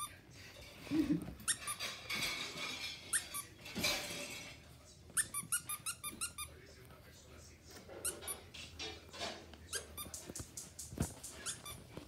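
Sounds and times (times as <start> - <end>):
rustling: 0.0 - 12.0
dog toy squeaks: 1.4 - 2.0, 3.0 - 3.5, 5.2 - 6.5, 8.0 - 8.5, 9.7 - 10.3, 11.2 - 12.0.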